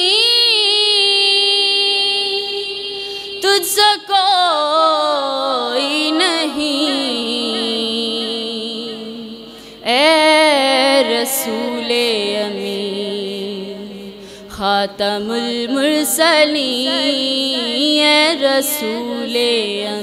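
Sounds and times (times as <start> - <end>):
woman singing long wavering notes: 0.0 - 20.0
steady held drone: 5.8 - 19.1.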